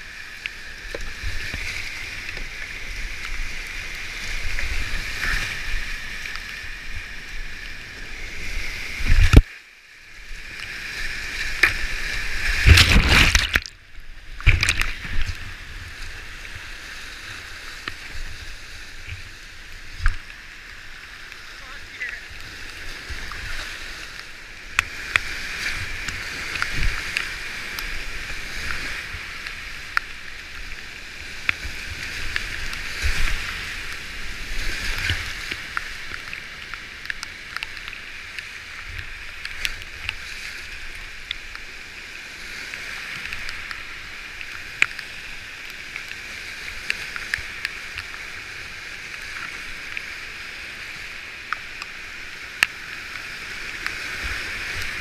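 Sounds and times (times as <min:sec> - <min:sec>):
sharp splashes: 0:11.5 - 0:15.6.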